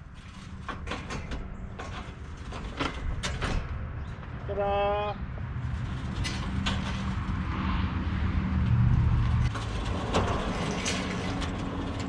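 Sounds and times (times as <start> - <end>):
sliding door rolling on track: 0.0 - 3.8, 5.6 - 7.4, 9.1 - 12.0.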